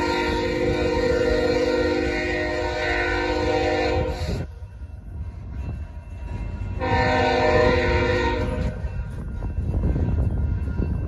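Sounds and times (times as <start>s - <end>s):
locomotive air horn: 0.0s - 4.4s, 6.8s - 8.9s
freight cars rumbling on rails: 0.0s - 11.0s.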